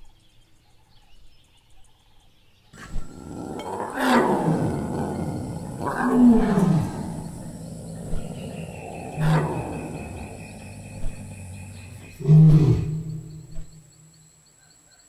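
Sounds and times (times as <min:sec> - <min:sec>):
cartoon dinosaur roaring: 0:02.8 - 0:13.3.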